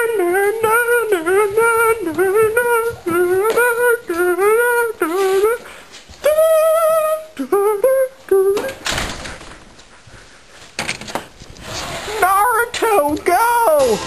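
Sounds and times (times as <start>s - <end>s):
person humming a tune: 0.0s - 5.6s, 6.2s - 8.8s.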